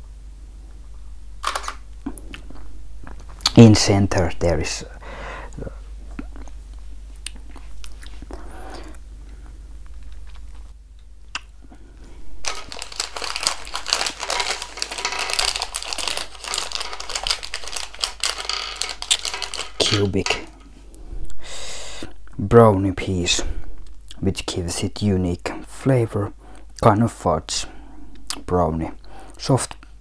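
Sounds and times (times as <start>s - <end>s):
person crunching candy: 9.8s - 20.7s.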